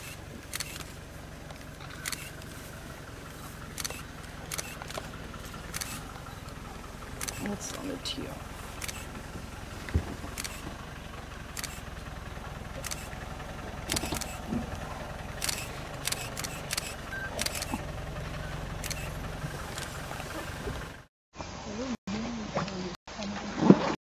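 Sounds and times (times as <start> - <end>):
sharp clicks: 0.0 - 2.5, 3.7 - 5.1, 5.7 - 6.6, 7.2 - 7.9, 8.8 - 9.2, 9.9 - 10.7, 11.5 - 11.8, 12.8 - 13.1, 13.9 - 14.4, 15.4 - 17.8, 18.8 - 20.0
vehicle engine idling: 0.0 - 21.1.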